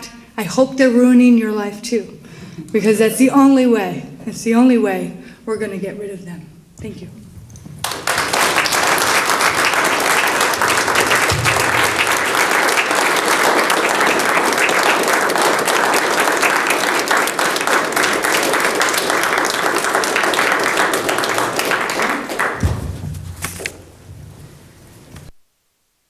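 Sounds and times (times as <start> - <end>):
audience applauding: 7.8 - 23.8.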